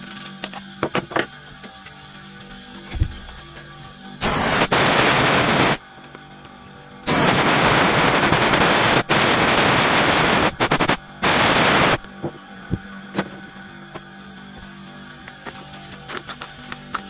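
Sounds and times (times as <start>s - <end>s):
quiet music: 0.0s - 4.3s, 5.6s - 7.1s, 12.0s - 17.0s
air blower blasting: 4.2s - 5.8s, 7.1s - 12.2s.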